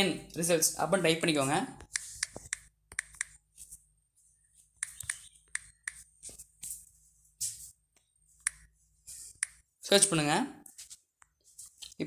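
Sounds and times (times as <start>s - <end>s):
phone keyboard clicks: 1.8s - 3.4s.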